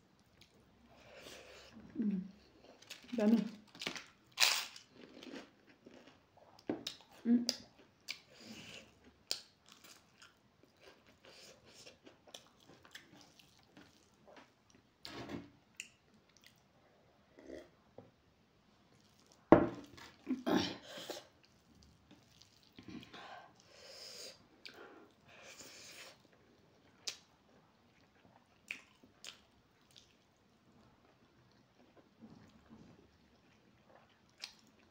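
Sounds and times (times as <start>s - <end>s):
chewing and crunching: 2.4s - 14.8s, 26.2s - 34.9s.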